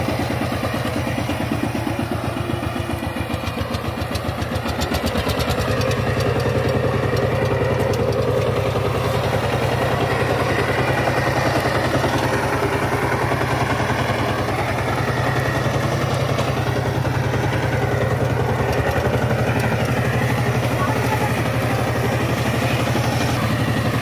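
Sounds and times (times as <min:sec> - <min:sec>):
diesel tiller engine pulsing: 0:00.0 - 0:24.0.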